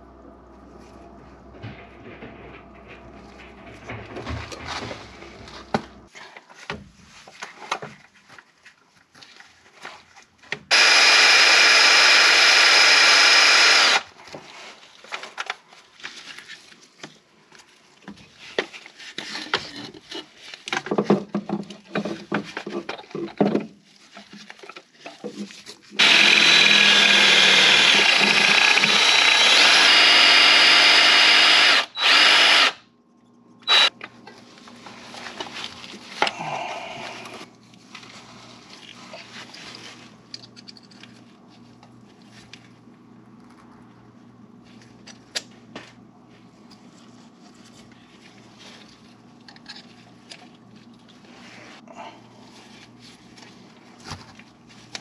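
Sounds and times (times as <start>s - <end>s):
power drill drilling metal: 10.7s - 14.1s, 26.0s - 32.8s, 33.6s - 33.9s.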